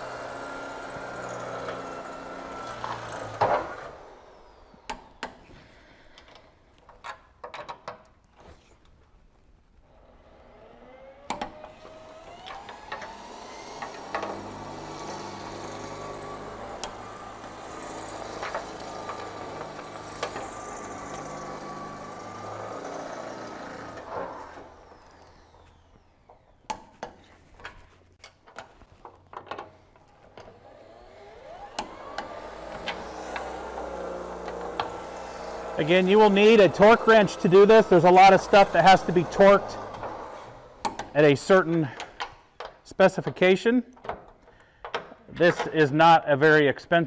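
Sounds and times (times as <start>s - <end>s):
power drill boring into steel: 0.0s - 5.2s, 10.5s - 26.8s, 30.4s - 41.2s.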